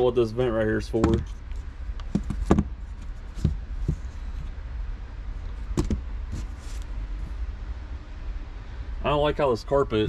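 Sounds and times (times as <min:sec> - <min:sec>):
steady low rumble: 0:00.0 - 0:10.0
plastic clicks and knocks: 0:02.0 - 0:02.7.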